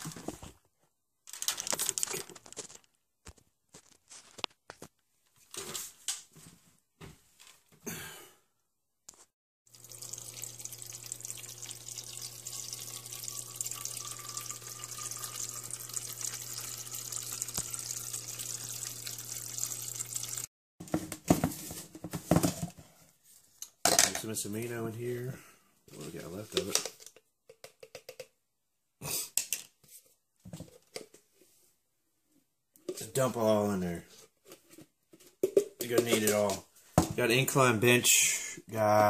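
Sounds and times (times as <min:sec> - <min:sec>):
water dispenser running into bottle: 0:09.7 - 0:20.5.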